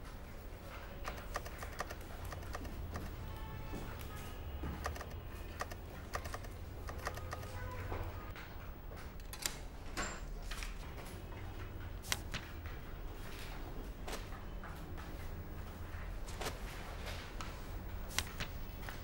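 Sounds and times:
calculator keys clicking: 1.0s - 3.2s, 4.7s - 7.7s.

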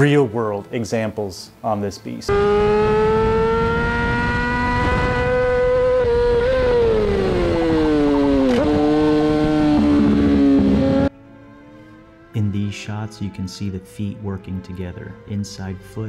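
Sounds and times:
motorcycle engine at high revs: 2.3s - 11.1s
wind rush: 2.4s - 11.1s.

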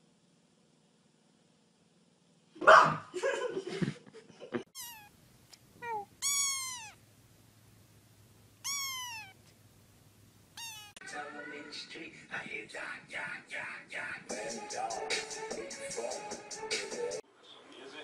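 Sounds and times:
kitten meowing: 4.7s - 5.1s, 5.8s - 7.0s, 8.6s - 9.5s, 10.6s - 11.0s.

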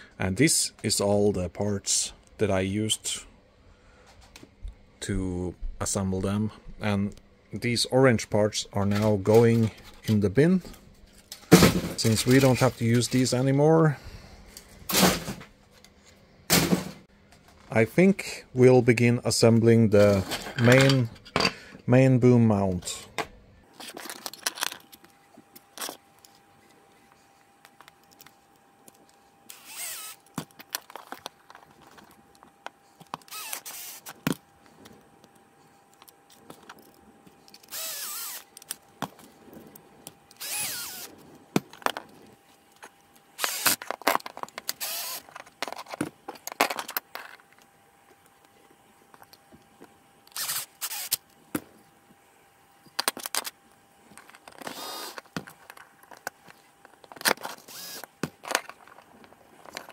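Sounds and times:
cordless drill driving screws: 29.5s - 30.2s, 33.2s - 34.1s, 37.7s - 38.5s, 40.4s - 41.1s, 43.4s - 43.8s, 44.8s - 45.3s, 50.3s - 51.2s, 57.6s - 58.1s.

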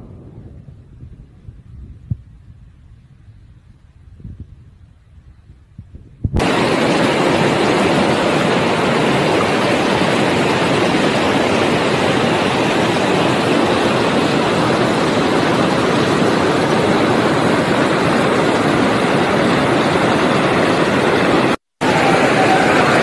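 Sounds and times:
river water rushing over rocks: 6.4s - 23.0s.

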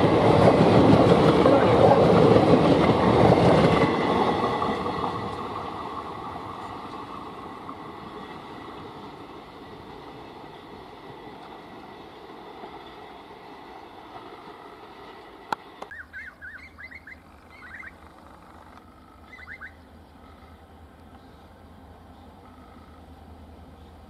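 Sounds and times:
train rumbling: 0.0s - 24.0s
bird chirping: 15.9s - 18.1s, 18.9s - 20.6s.

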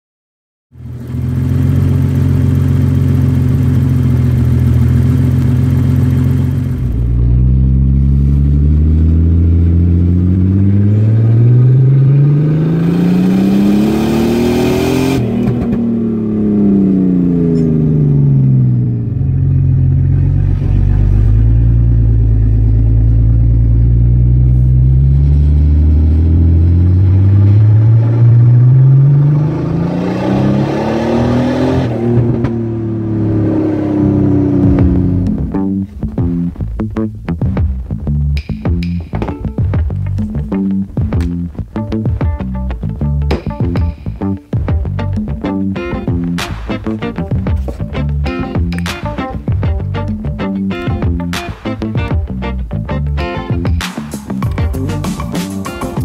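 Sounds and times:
car engine revving: 0.8s - 56.0s.

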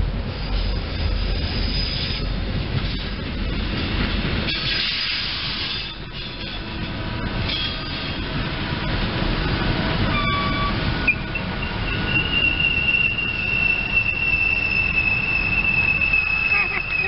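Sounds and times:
electric train running on rails: 0.0s - 17.0s
high steady wheel squeal: 0.2s - 2.4s, 10.0s - 17.0s.

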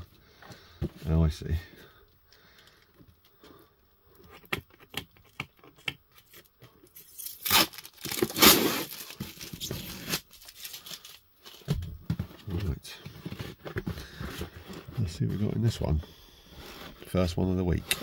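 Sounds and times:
tape tearing off cardboard: 7.1s - 10.5s.

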